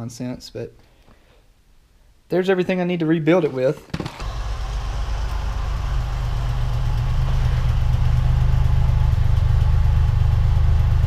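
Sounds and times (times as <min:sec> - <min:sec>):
car engine idling: 0:04.2 - 0:11.0.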